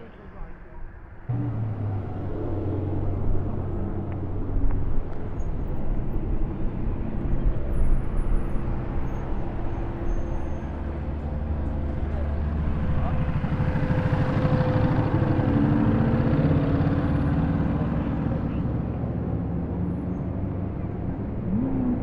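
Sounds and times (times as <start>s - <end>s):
car engine running: 1.3s - 8.6s.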